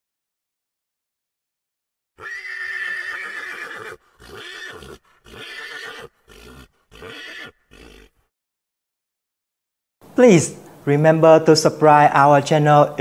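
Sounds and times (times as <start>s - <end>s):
pony whinnying: 2.2s - 8.3s.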